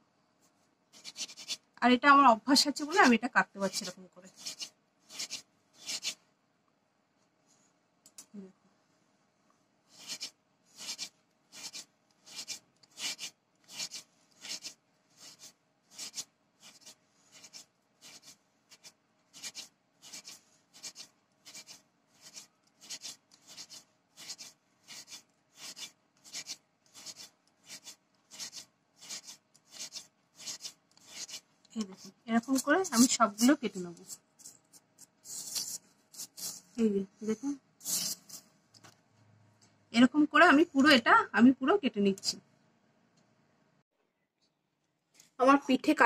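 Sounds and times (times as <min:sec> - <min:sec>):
palm rubbing dough on wooden board: 0:01.0 - 0:01.6, 0:09.9 - 0:31.5.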